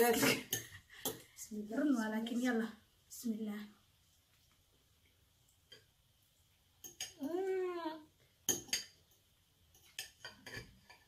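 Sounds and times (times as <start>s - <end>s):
utensils clinking against a dish: 0.0s - 1.3s, 6.8s - 7.5s, 8.5s - 11.0s.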